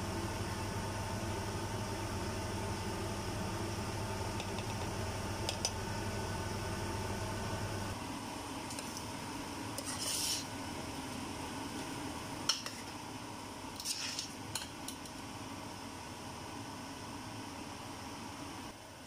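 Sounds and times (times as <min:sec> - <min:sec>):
metal spoon scraping a pot: 0:09.8 - 0:10.5, 0:13.8 - 0:14.4.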